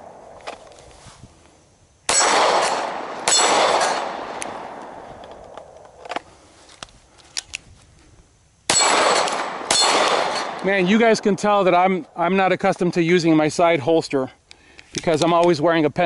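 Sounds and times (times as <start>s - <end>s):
pistol shots: 2.1s - 5.8s, 8.7s - 12.0s.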